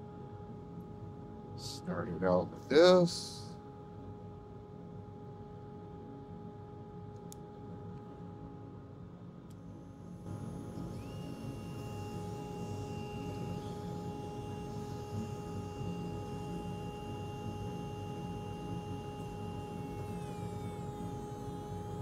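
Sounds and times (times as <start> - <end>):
rotary tool whining: 9.8 - 22.0.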